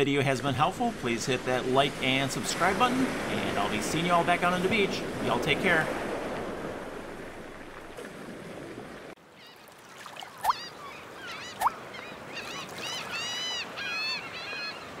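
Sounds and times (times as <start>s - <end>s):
surf washing on a beach: 0.2s - 9.2s
gulls calling: 9.3s - 15.0s.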